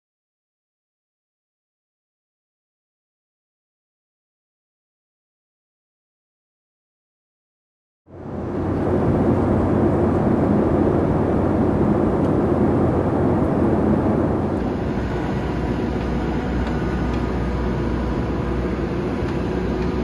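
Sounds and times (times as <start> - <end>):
deep jet rumble with whines: 8.1 - 20.0
jet engine cabin noise: 8.1 - 20.0.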